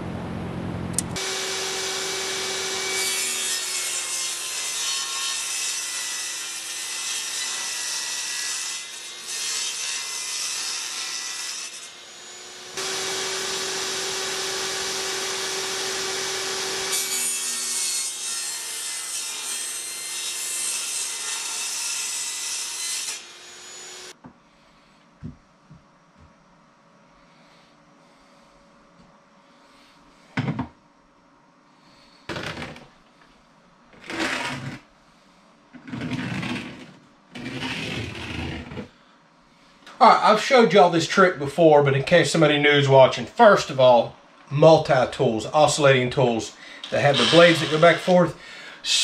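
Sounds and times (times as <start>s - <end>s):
table saw cutting plywood: 1.0s - 24.2s, 34.0s - 34.9s, 35.8s - 38.9s, 46.8s - 48.3s.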